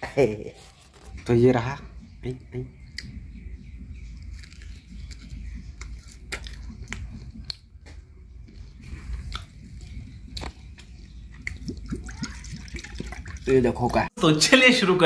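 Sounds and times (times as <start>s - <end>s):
person chewing crunchy fish: 4.2s - 7.7s, 8.4s - 13.4s.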